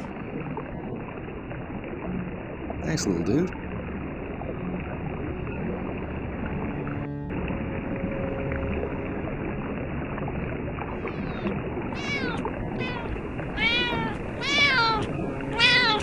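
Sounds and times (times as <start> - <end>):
cat meowing: 11.1 - 16.0.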